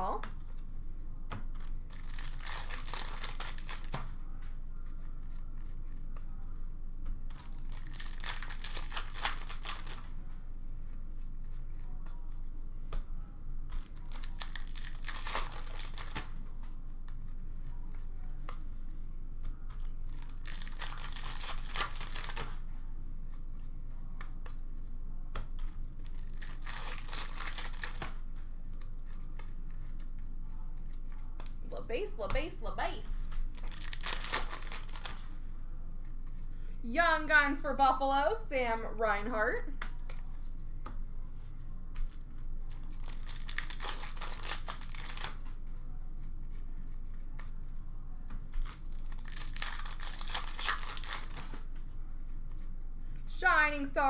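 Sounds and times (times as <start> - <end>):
foil wrappers tearing and crinkling: 1.8 - 3.9, 7.5 - 10.0, 13.9 - 16.3, 20.0 - 22.6, 26.0 - 28.1, 33.5 - 35.3, 42.7 - 45.5, 48.6 - 51.5.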